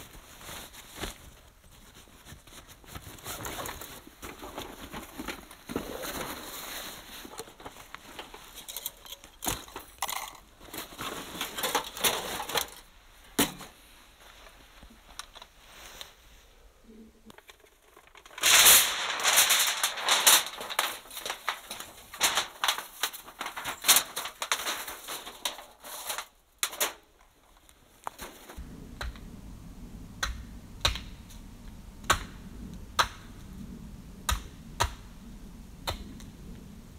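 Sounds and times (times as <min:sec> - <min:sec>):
fabric and bag rustling: 0:00.0 - 0:12.9, 0:18.3 - 0:28.6
loud rustle or scrape: 0:00.0 - 0:12.9, 0:15.4 - 0:16.5, 0:17.4 - 0:28.7
metallic clicks and clatters: 0:07.3 - 0:12.9, 0:17.3 - 0:27.0.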